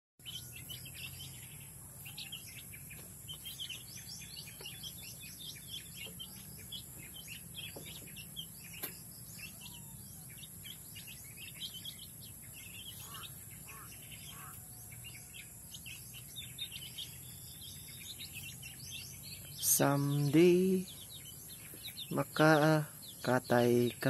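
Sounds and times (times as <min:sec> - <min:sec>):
chicks peeping: 0:00.2 - 0:24.0.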